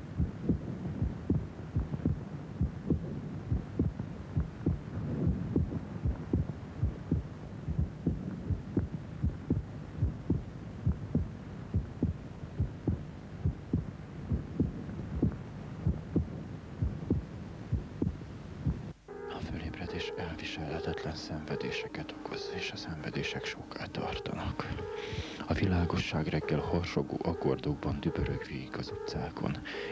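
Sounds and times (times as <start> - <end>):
heartbeat thumps: 0.0 - 19.0
low hum: 0.0 - 29.9.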